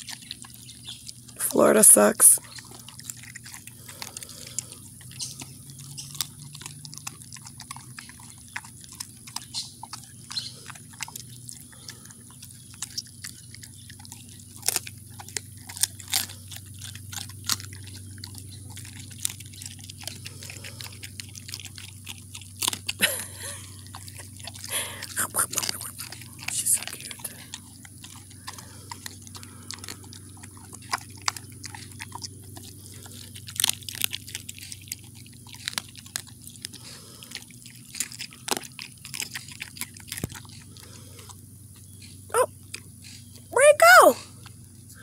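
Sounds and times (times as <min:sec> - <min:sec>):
dog chewing meat and bone: 0:00.0 - 0:43.5
faint low hum: 0:00.0 - 0:45.0.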